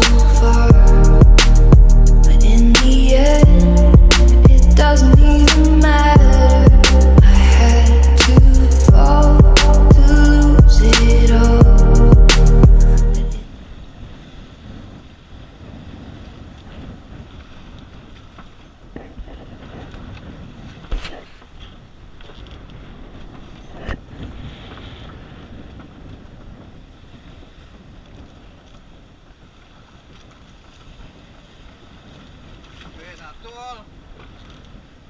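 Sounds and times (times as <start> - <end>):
wind buffeting microphone: 0.0 - 35.0
water sloshing against boat hull: 27.2 - 35.0.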